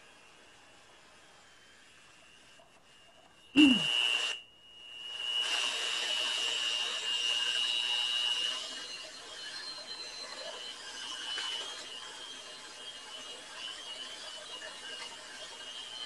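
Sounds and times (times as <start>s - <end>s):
electric hand mixer whirring: 5.0s - 16.0s.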